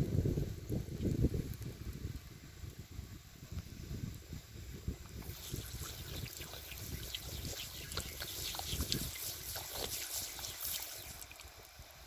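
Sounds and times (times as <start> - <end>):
garden hose spraying water: 3.8 - 12.0.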